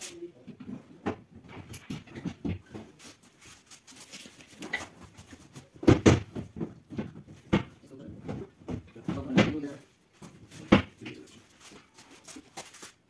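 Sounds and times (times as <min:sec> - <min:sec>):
loud knocks: 0:05.8 - 0:09.8.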